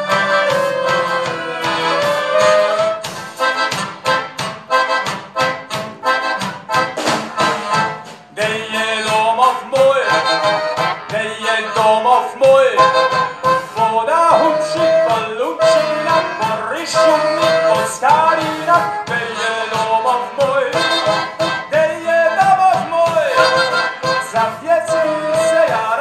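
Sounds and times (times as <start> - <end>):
folk band playing: 0.0 - 26.0
man singing: 8.3 - 26.0
drum beat: 12.6 - 16.8, 21.7 - 23.4.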